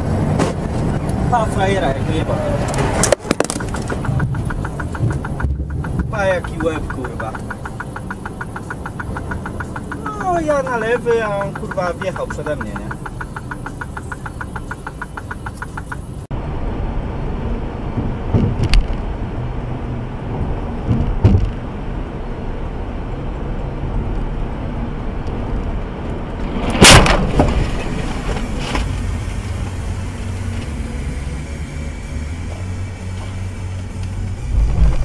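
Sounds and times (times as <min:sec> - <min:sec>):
road and engine noise in car: 0:00.0 - 0:35.0
sharp knocks: 0:03.0 - 0:16.1
loud bang: 0:26.5 - 0:28.5, 0:34.5 - 0:35.0.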